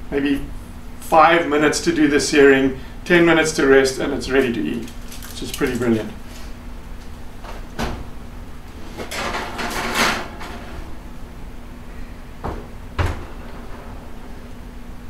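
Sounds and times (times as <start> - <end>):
oven door shutting knocks: 12.4 - 14.0.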